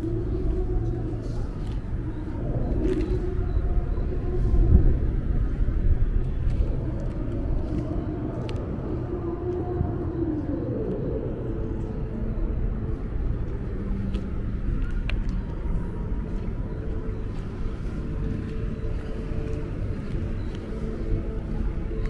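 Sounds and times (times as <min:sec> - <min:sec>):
faint hum: 0:00.0 - 0:22.0
low rumble: 0:00.0 - 0:22.0.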